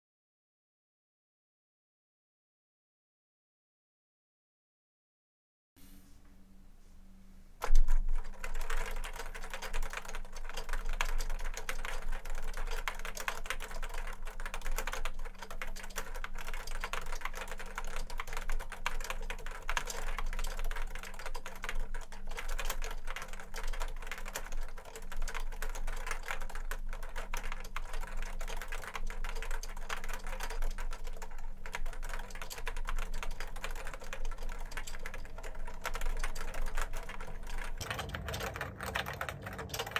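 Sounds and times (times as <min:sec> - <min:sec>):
fast keyboard typing: 0:07.6 - 0:39.9.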